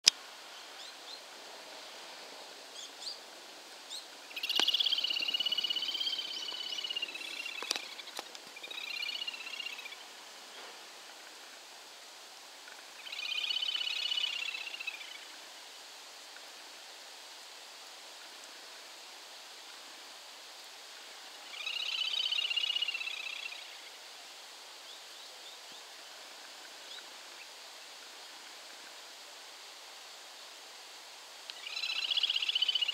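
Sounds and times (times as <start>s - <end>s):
bird trilling: 4.3s - 10.0s
short high bird chirps: 4.4s - 8.1s.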